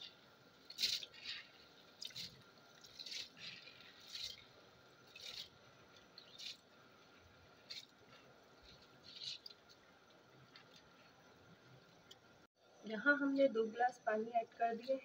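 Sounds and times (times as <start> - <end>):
rice splashing into water: 0.7 - 6.6.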